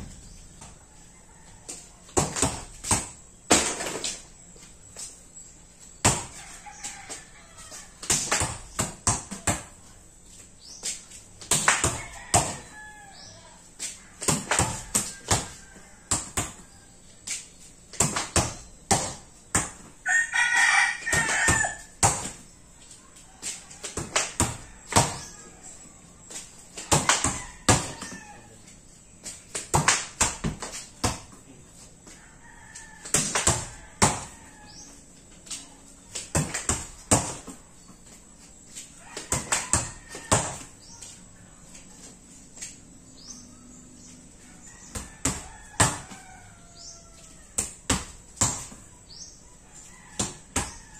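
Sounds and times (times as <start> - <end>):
rooster crowing: 0.0 - 2.0, 11.9 - 13.6, 14.6 - 17.0, 20.0 - 21.9, 27.1 - 28.6, 32.1 - 35.0, 39.0 - 40.8, 44.4 - 47.7
volleyball bouncing and slapped: 1.7 - 4.2, 6.0 - 6.4, 8.0 - 9.8, 11.4 - 12.7, 14.2 - 16.7, 17.9 - 19.9, 21.1 - 22.5, 23.5 - 25.3, 26.3 - 28.2, 29.2 - 31.4, 33.0 - 34.4, 36.1 - 37.6, 39.2 - 40.8, 44.8 - 46.2, 47.6 - 48.9, 50.2 - 50.8.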